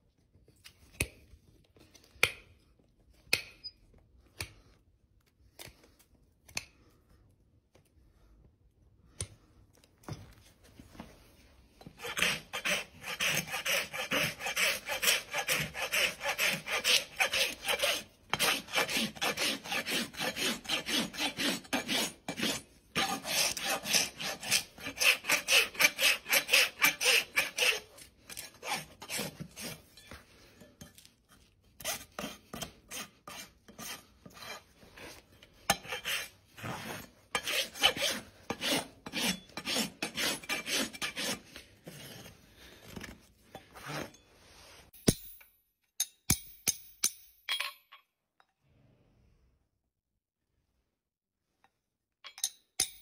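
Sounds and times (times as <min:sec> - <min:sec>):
rasp filing a hoof: 0:11.8 - 0:44.8.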